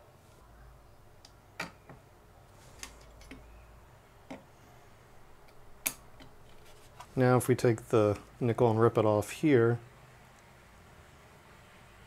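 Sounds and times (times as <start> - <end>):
spot welder snapping clicks: 5.5 - 6.3.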